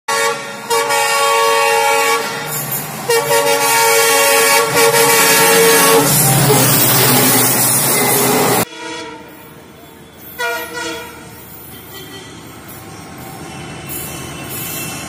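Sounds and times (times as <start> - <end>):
train air horn blasts: 0.1 - 9.6, 10.2 - 12.4
diesel locomotive rumbling: 0.1 - 15.0.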